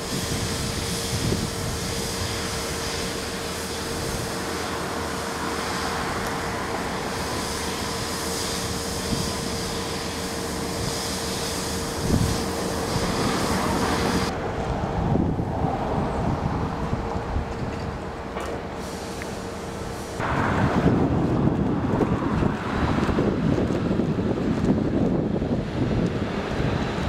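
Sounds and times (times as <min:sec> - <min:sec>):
rumbling hiss: 0:00.0 - 0:17.0, 0:18.0 - 0:21.9.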